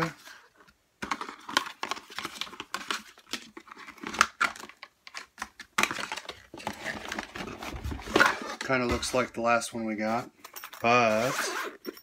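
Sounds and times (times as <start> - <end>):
paperboard box rustling and scraping: 6.6 - 9.3, 11.0 - 12.0.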